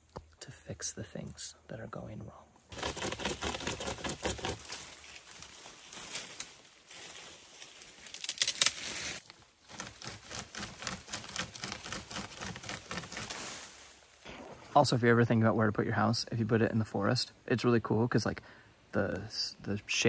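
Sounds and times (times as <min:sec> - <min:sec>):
twigs and leaves rustling: 0:02.6 - 0:14.4
hand saw rasping through branch: 0:02.7 - 0:04.8, 0:09.7 - 0:13.6.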